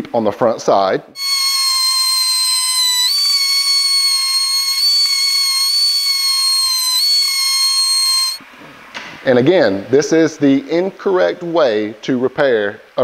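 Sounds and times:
die grinder whining: 1.2 - 8.4.

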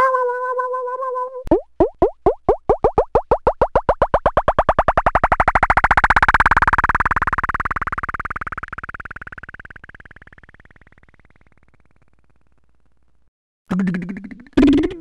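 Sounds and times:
rising pulsing electronic tone: 1.5 - 12.5.

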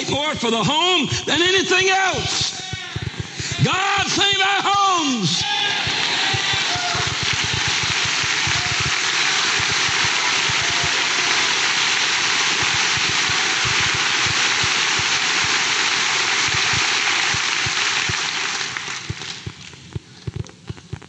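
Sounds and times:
crowd applauding: 5.4 - 19.7.

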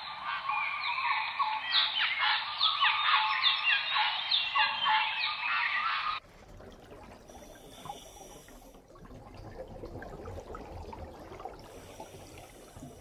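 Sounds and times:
underwater sloshing and rumbling: 6.2 - 13.0.

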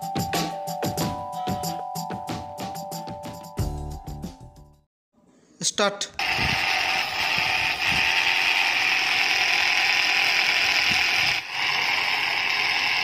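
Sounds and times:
toy plane motors whirring: 6.2 - 13.0.

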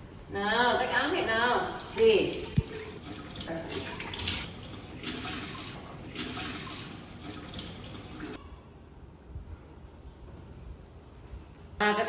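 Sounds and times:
tap running into metal sink: 1.8 - 8.4.

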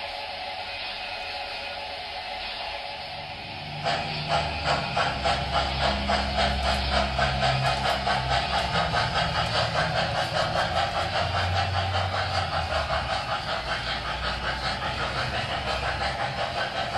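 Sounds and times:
model train clattering on track: 3.6 - 16.9.

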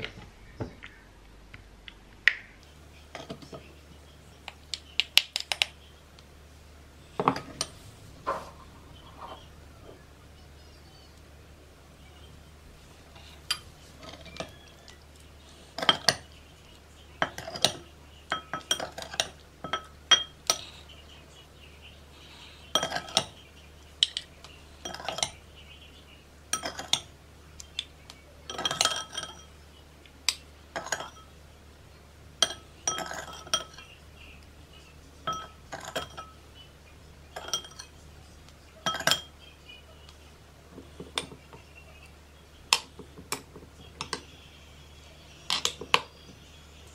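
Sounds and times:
metal spoon clinking on ceramic: 17.2 - 20.6, 22.7 - 23.4, 24.8 - 25.4, 26.5 - 27.1, 28.5 - 29.6, 30.3 - 31.4, 32.4 - 34.0, 35.2 - 36.4, 37.3 - 38.0, 38.8 - 39.4.

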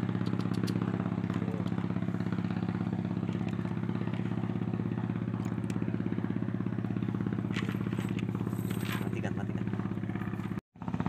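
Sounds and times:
small engine chugging: 0.0 - 11.0.

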